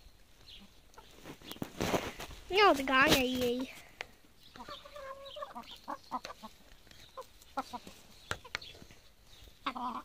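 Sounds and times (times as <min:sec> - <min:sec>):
hens clucking softly: 0:04.3 - 0:10.0.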